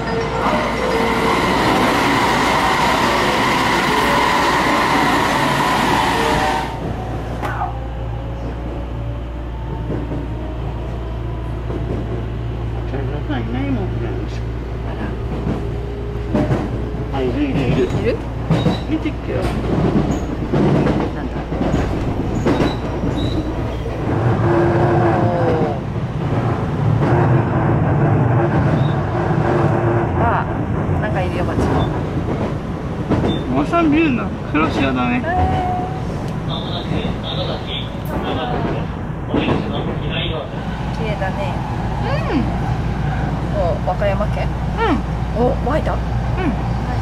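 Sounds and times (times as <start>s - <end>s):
train cabin hum: 0.0s - 47.0s
train rushing by: 0.0s - 47.0s.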